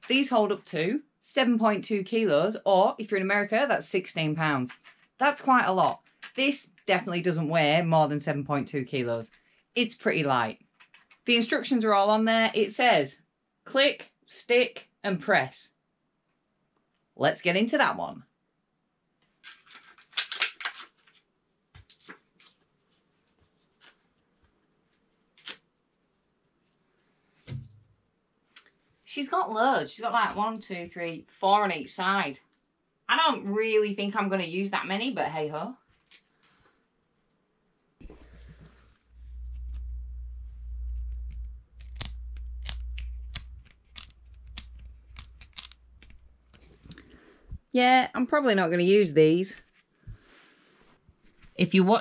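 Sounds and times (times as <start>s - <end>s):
plastic strips clicking and rustling: 4.6s - 5.2s, 5.9s - 6.9s, 10.7s - 11.2s, 19.2s - 25.6s, 41.7s - 47.0s
velcro strips ripping: 19.4s - 21.2s, 24.9s - 25.8s, 39.3s - 46.8s
low hum: 38.0s - 46.8s.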